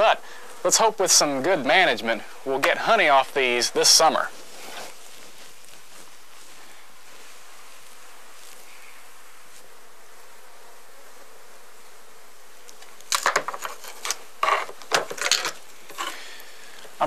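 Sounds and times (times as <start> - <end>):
bees humming: 0.0 - 17.0
wooden slats creaking and squeaking: 13.1 - 16.2.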